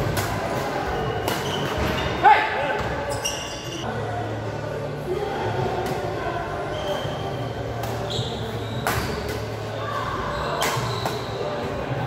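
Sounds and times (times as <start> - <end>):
sneakers squeaking on court floor: 0.8 - 2.2, 2.8 - 3.8, 6.6 - 9.5, 10.2 - 11.9.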